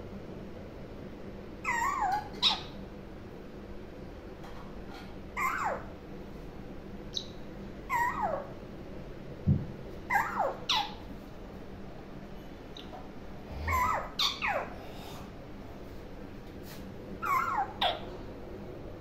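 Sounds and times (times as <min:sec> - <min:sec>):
parakeet calls: 0:01.6 - 0:02.8, 0:05.4 - 0:05.9, 0:07.1 - 0:08.6, 0:10.1 - 0:11.1, 0:13.6 - 0:14.8, 0:17.2 - 0:18.1.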